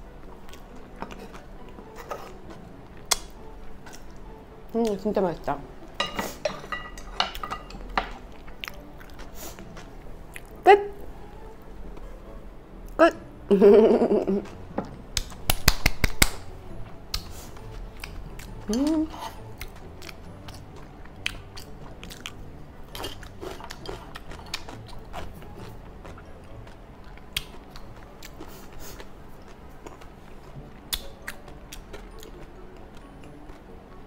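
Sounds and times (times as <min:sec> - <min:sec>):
person chewing: 0:00.4 - 0:04.2, 0:08.3 - 0:10.6, 0:17.1 - 0:33.6
person humming: 0:18.4 - 0:19.6.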